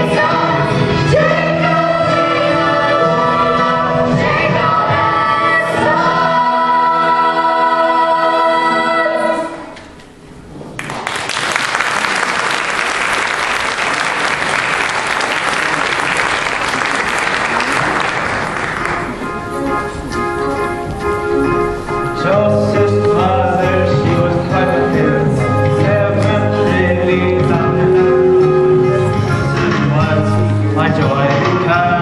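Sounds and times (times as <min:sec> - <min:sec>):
chorus singing a chord: 0:00.0 - 0:09.7
music: 0:00.0 - 0:09.8, 0:17.7 - 0:32.0
audience applause: 0:10.8 - 0:19.2.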